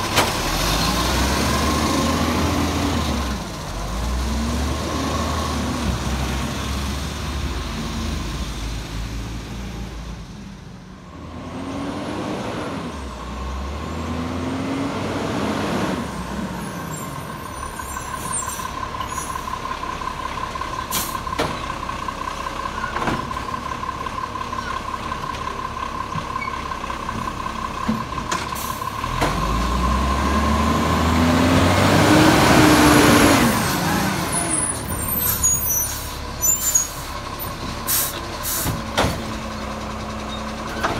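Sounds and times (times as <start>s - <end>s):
garbage truck diesel engine revving: 0.0s - 40.9s
air brake hisses: 37.9s - 38.8s.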